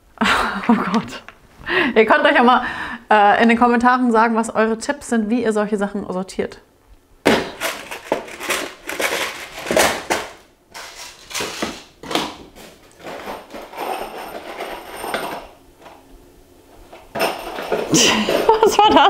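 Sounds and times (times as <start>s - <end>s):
boxes of screws rattling: 7.5s - 11.9s, 12.6s - 15.5s, 17.1s - 18.6s
plastic screw cases clacking: 7.5s - 12.3s.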